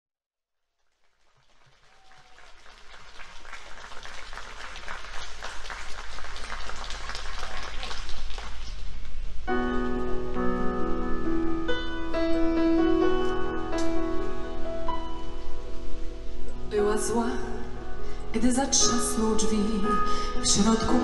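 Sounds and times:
audience applauding: 0.8 - 9.2
keyboard chords: 9.5 - 21.0.

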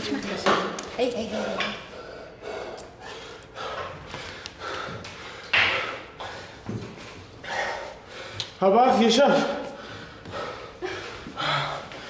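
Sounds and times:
man breathing hard: 1.8 - 6.8, 7.4 - 8.6, 9.4 - 12.0.

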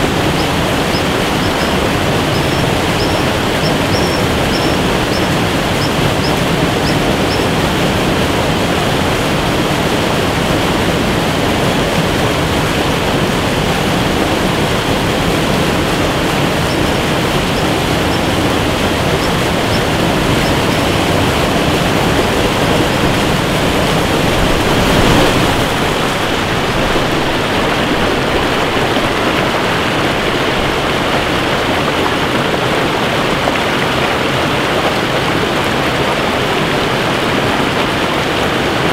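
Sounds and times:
waterfall and rushing river: 0.0 - 38.9
faint high chirps: 0.3 - 7.5, 16.6 - 21.0.

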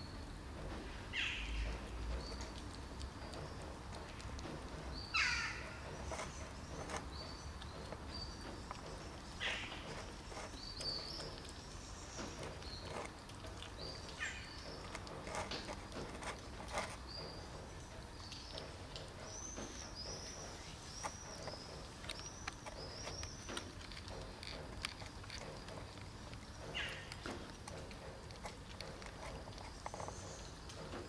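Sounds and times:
kittens chewing: 0.4 - 31.0
small bird chirping: 1.1 - 3.8, 4.4 - 30.9.

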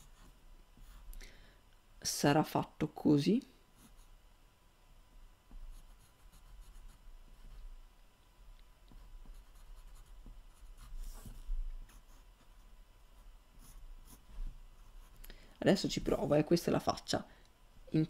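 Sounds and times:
pencil sketching on paper: 5.7 - 7.5, 9.0 - 12.6, 13.2 - 15.2.

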